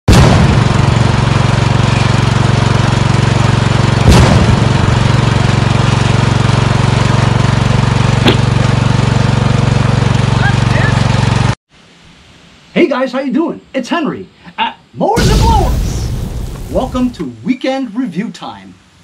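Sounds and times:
lawn tractor engine running: 0.4 - 11.6.

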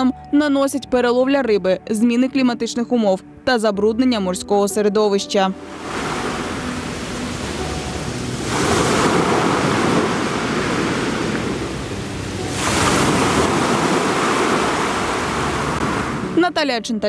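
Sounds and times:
waves washing up pebble beach: 5.7 - 16.4.

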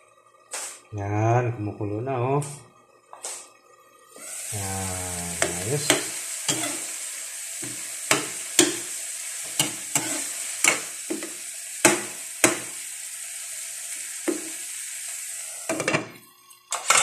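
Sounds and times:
vegetables sizzling in frying pan: 4.1 - 17.0.

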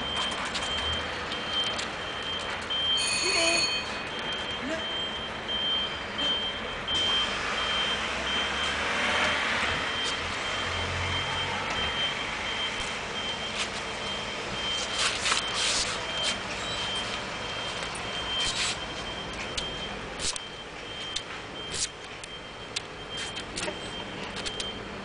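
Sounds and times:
engine and traffic noise: 0.0 - 25.0
reversing alarm beeping: 0.0 - 25.0
rustles and scuffs: 13.5 - 14.0, 14.6 - 19.2.

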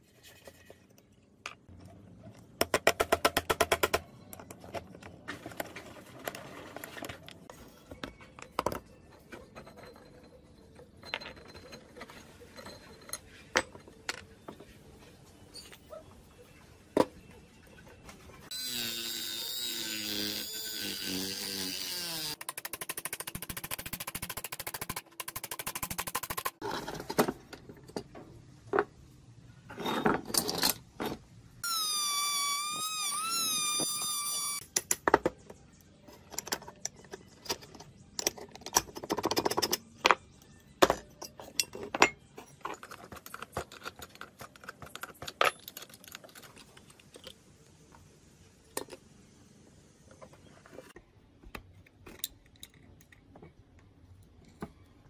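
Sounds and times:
metal clicks and scrapes: 41.2 - 47.4.

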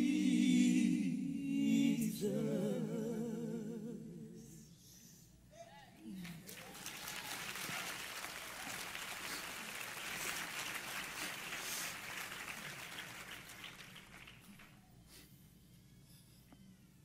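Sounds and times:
audience applauding: 6.2 - 14.8.

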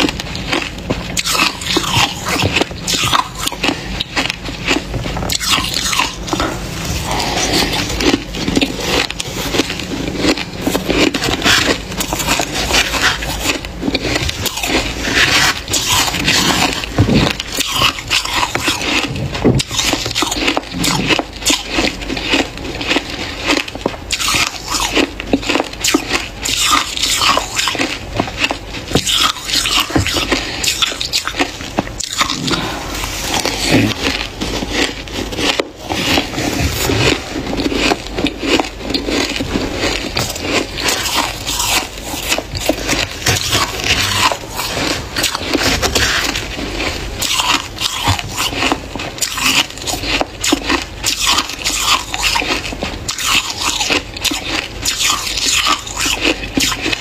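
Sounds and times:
crunching ice: 0.0 - 57.0
spoon scraping ice in bowl: 1.2 - 21.2.

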